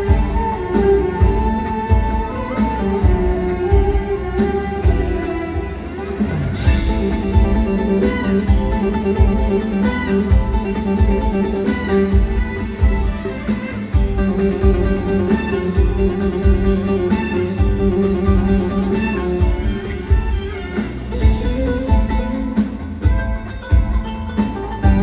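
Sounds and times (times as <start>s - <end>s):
plucked string instruments: 0.0s - 25.0s
steady drum beat: 0.0s - 25.0s.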